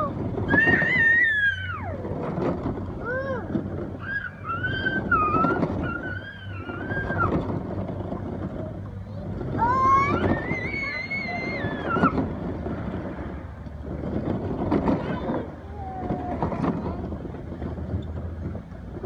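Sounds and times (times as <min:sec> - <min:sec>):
plastic wheels rumbling on concrete: 0:00.0 - 0:19.0
young children squealing: 0:00.5 - 0:02.1, 0:04.0 - 0:07.5, 0:09.6 - 0:12.2.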